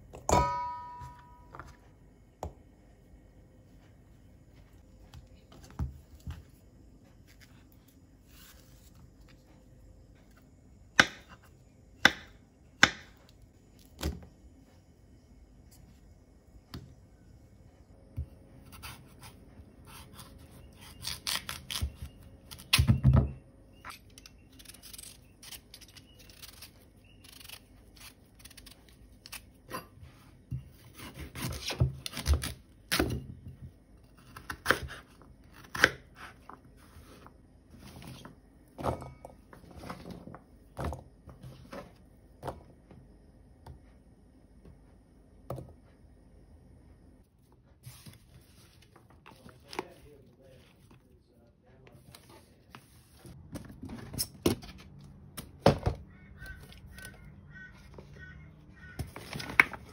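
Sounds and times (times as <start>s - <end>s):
knife cutting sweet potato: 18.6s - 22.9s, 30.8s - 33.2s, 34.1s - 36.6s.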